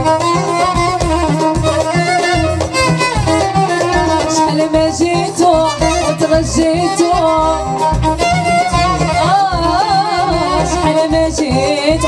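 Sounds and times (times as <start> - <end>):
band playing live: 0.0 - 12.0
person singing: 3.7 - 7.8, 8.4 - 12.0.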